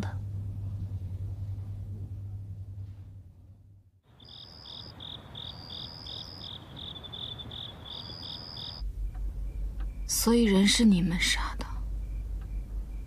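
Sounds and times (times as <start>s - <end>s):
low background hum: 0.0s - 13.0s
crickets chirping: 4.0s - 13.0s
thin high insect trill: 4.1s - 11.4s.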